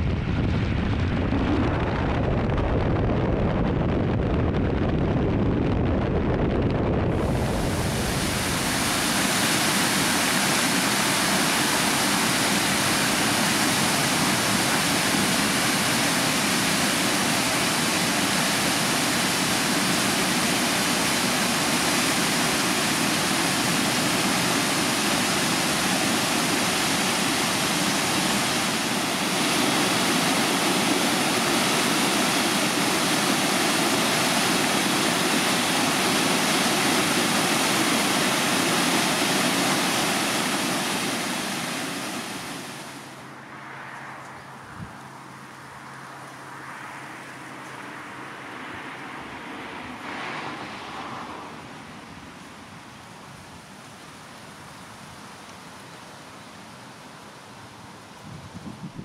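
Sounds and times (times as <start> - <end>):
waterfall plunging into pool: 7.1 - 43.1
stream rushing over boulders: 7.1 - 43.3.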